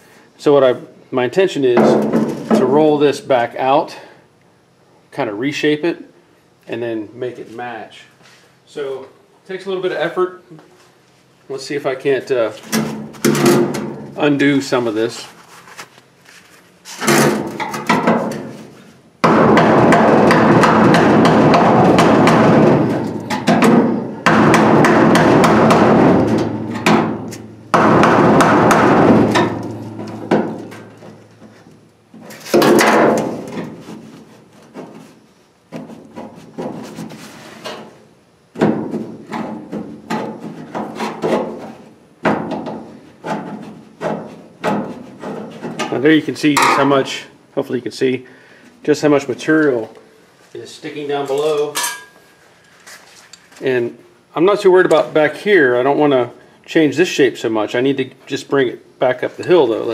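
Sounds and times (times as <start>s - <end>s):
hammer striking sheet steel: 19.2s - 31.0s.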